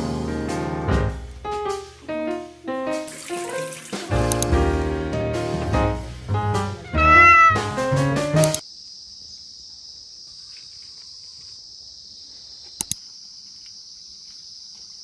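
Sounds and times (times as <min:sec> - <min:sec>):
sharp clicks: 0:04.2 - 0:04.6, 0:08.2 - 0:08.6, 0:12.8 - 0:13.0
cicadas droning: 0:08.5 - 0:15.0.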